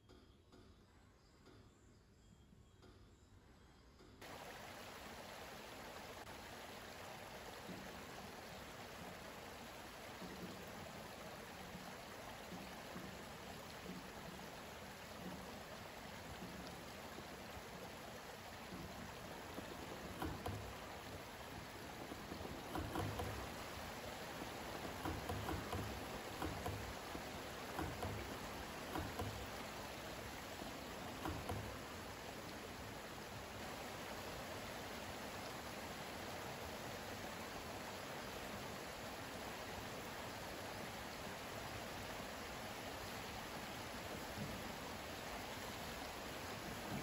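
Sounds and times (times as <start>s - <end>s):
low thumps: 18.6s - 32.2s.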